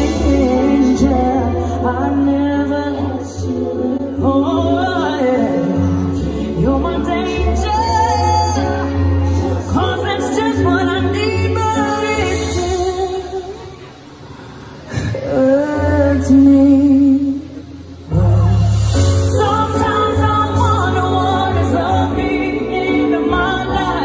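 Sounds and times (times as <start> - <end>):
bass line: 15.8 - 24.0.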